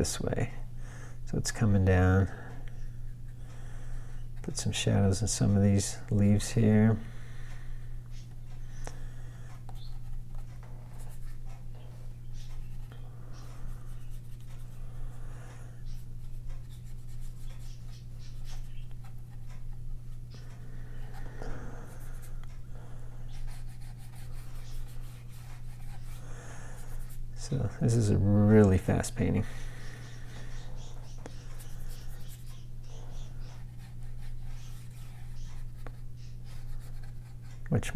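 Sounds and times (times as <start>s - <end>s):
steady low hum: 0.0s - 37.9s
paintbrush strokes on paper: 23.3s - 26.2s.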